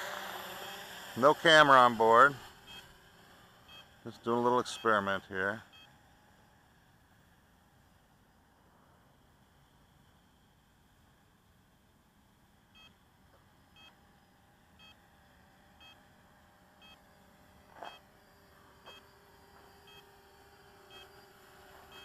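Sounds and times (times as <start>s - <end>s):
faint electronic beeps: 17.8s - 18.1s, 18.8s - 22.0s.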